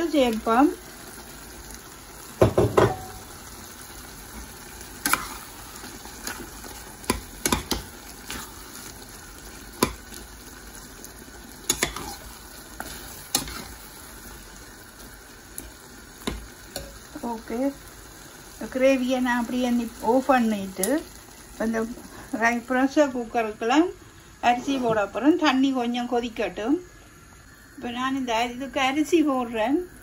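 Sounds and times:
faint gravy sizzle: 0.0s - 30.0s
metal spatula scraping pot: 11.7s - 13.8s.

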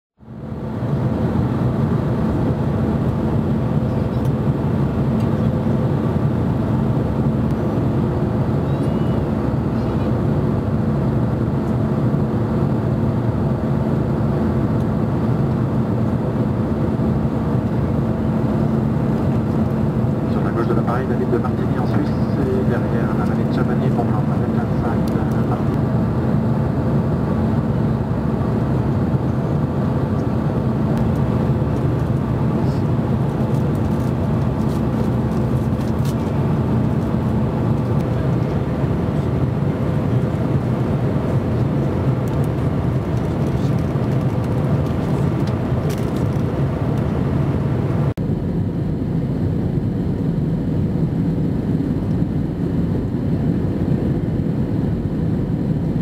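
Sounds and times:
airliner cabin engine hum: 0.2s - 56.0s.

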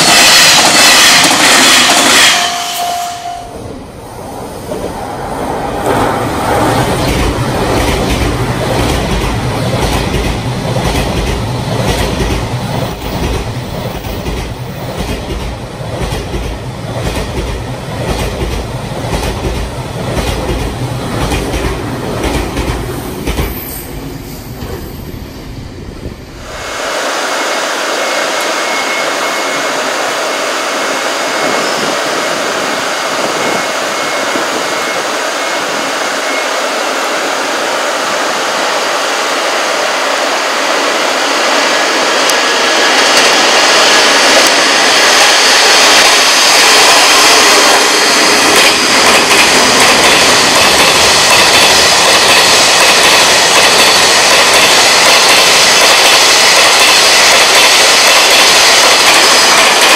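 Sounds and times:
thin high squeal: 0.0s - 3.6s
freight train wheels on rails: 0.0s - 59.9s.

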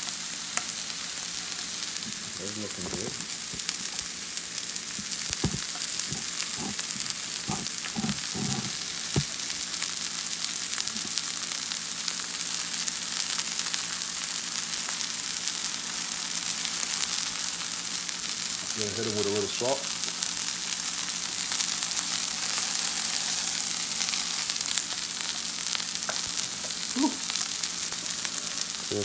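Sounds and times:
mushrooms sizzling in a skillet: 0.0s - 29.0s.

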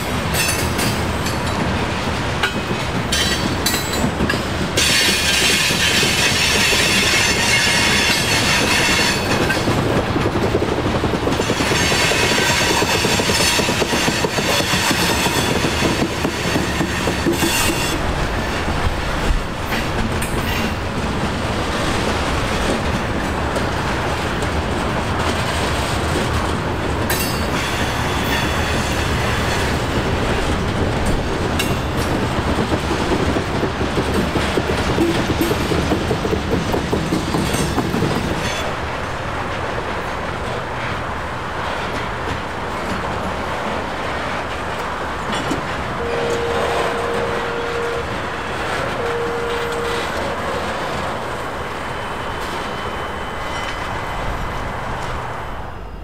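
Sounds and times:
freight train cars rolling past: 0.0s - 56.0s
high wheel squeal: 46.0s - 56.0s.

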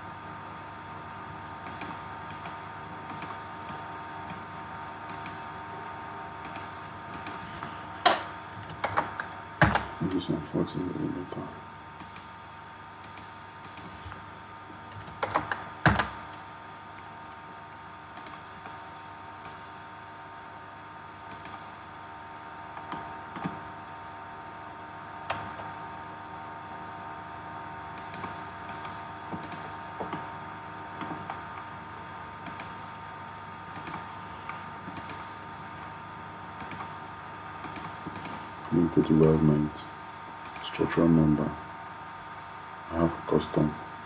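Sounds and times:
steady hum: 0.0s - 44.0s
keyboard keystrokes and mouse clicks: 1.6s - 4.5s, 5.1s - 5.4s, 6.4s - 7.4s, 12.0s - 12.3s, 13.0s - 14.0s, 15.0s - 16.2s, 18.1s - 18.8s, 21.3s - 21.6s, 22.7s - 23.6s, 27.9s - 30.2s, 32.4s - 32.8s, 33.7s - 34.1s, 34.9s - 35.3s, 36.6s - 36.9s, 37.6s - 38.4s, 40.4s - 40.7s.

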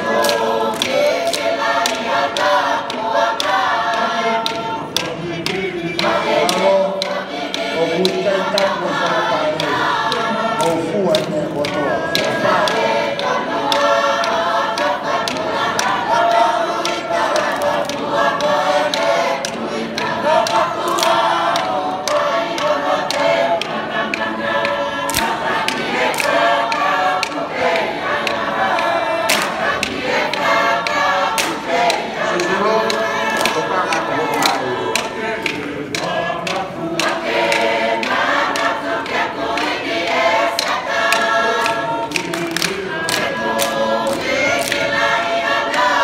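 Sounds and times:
choir singing unaccompanied: 0.0s - 46.0s
sharp hand claps: 0.0s - 46.0s.

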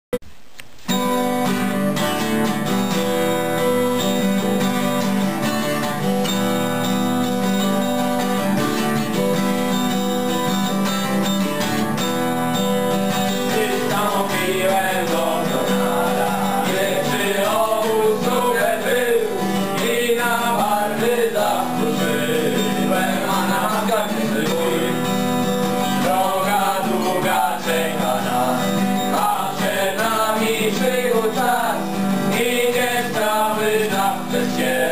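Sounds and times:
acoustic guitar ballad: 0.5s - 34.9s
man singing: 13.3s - 34.9s.

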